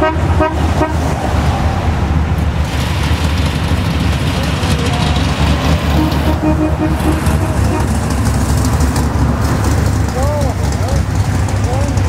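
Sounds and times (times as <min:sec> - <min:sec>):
car horn toots: 0:00.0 - 0:01.0, 0:05.9 - 0:08.1
car engines rumbling past: 0:00.0 - 0:12.0.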